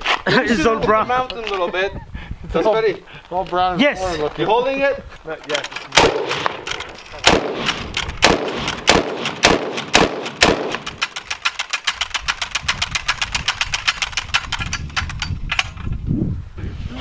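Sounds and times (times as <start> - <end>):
gun firing echoing shots: 5.9 - 11.8.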